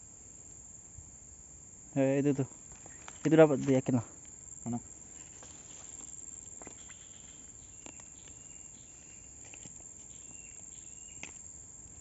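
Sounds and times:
low hiss: 0.0s - 7.6s
faint insects chirping: 0.0s - 12.0s.

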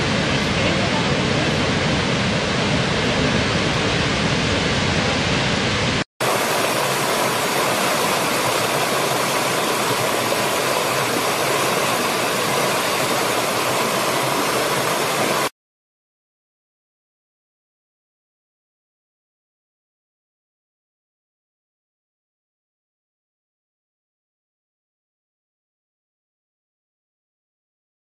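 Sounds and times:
large waterfall rushing: 0.0s - 15.5s
stream running over rocks: 6.2s - 15.5s.

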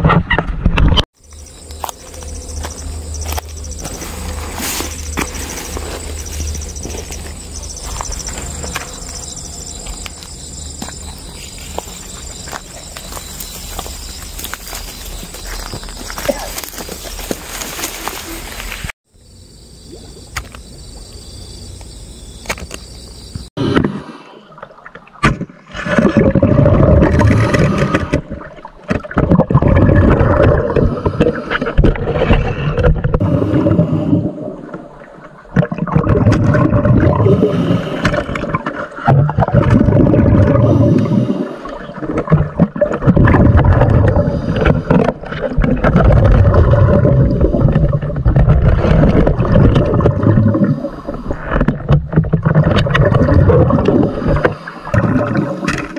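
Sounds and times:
churning gurgling water: 24.4s - 55.9s.

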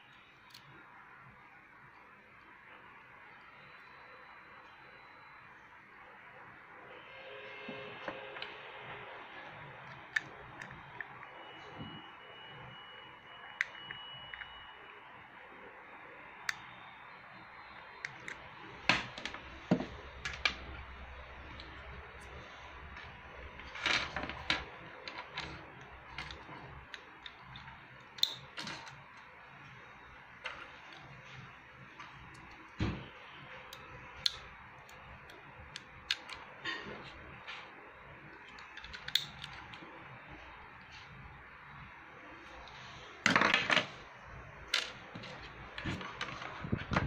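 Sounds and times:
plastic parts clicking on table: 23.6s - 29.0s, 33.7s - 36.4s, 38.4s - 39.8s.

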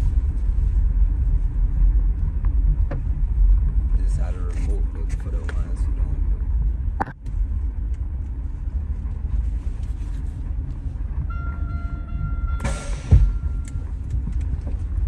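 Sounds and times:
high whine: 0.0s - 15.0s
road rumble inside car: 0.0s - 15.0s
heavy thump of car jolting: 12.6s - 13.6s.

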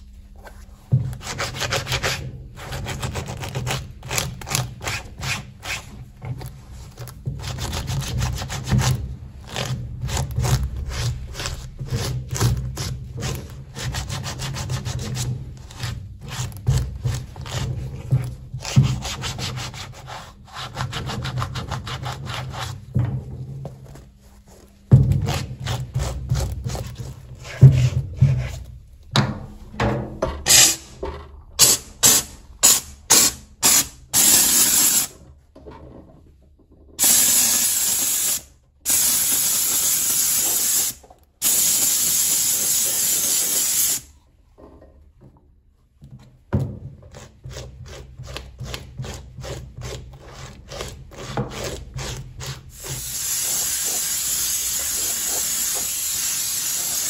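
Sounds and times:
brush scrubbing suede: 0.1s - 23.0s, 23.8s - 28.7s, 47.1s - 57.0s
steam hissing from steamer: 31.6s - 35.1s, 37.0s - 44.1s, 52.8s - 57.0s.

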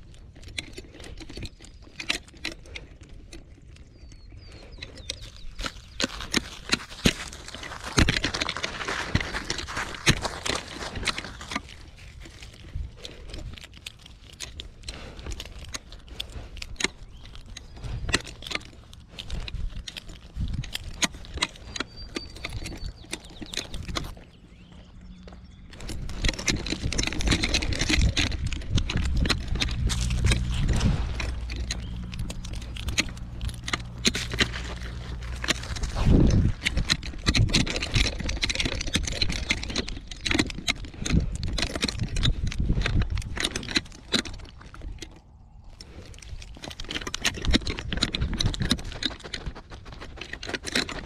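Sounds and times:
dog paws scuffing on gravel: 5.1s - 40.2s
low steady hum: 6.5s - 39.8s
metal collar tags jangling: 25.1s - 51.0s
collar rubbing against camera: 25.8s - 40.1s.

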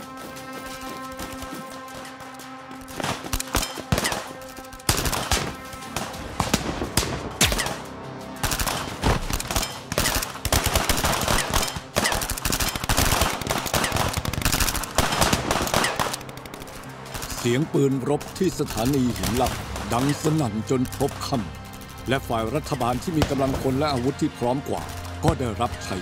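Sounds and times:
rifle and machine-gun fire: 2.9s - 17.5s.

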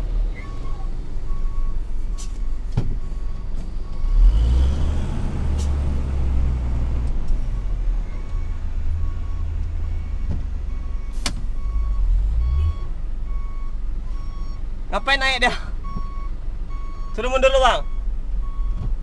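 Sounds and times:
diesel truck engine running: 0.0s - 19.0s
reversing beeper: 7.6s - 14.6s.

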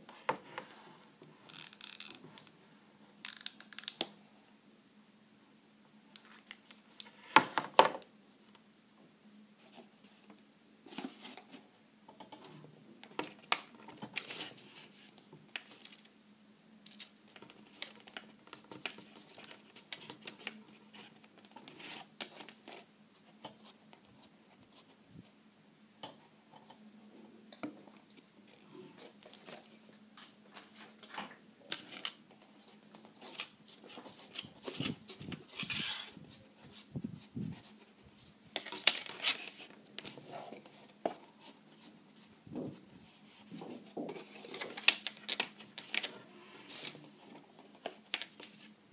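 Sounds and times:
faint steady hum: 0.0s - 48.9s
cardboard rustling and crinkling: 10.9s - 11.7s, 28.9s - 48.8s.

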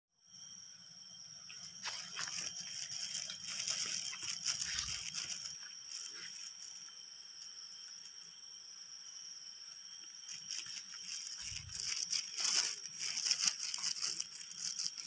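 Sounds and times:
high-pitched insect drone: 0.2s - 15.0s
footsteps on dry leaves: 1.5s - 6.8s, 10.3s - 15.0s.

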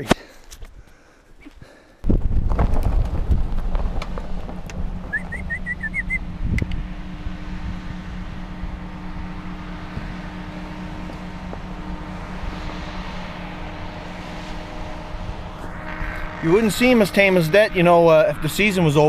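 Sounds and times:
truck engine idling: 2.2s - 19.0s
high chirps: 5.1s - 6.3s.

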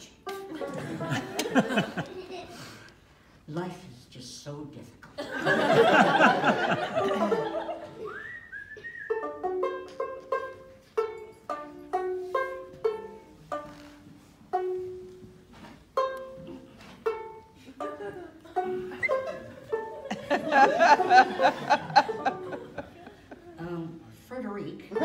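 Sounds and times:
audience laughing and clapping: 0.3s - 2.9s, 5.2s - 8.3s, 17.6s - 23.6s
plucked string instrument melody: 9.1s - 20.1s.

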